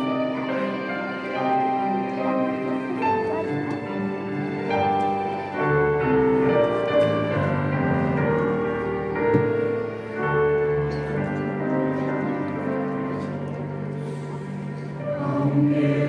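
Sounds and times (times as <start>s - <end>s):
piano playing slow hymn: 0.0s - 16.0s.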